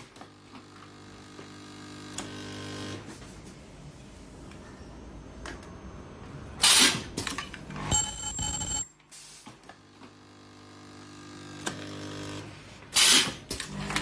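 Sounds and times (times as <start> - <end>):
ringing tone: 7.9 - 8.9.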